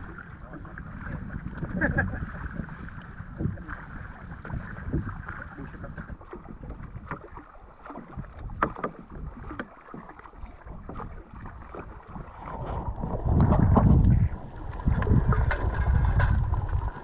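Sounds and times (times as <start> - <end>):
low rushing of water: 0.0 - 17.0
wooden paddles splashing and knocking: 0.0 - 17.0.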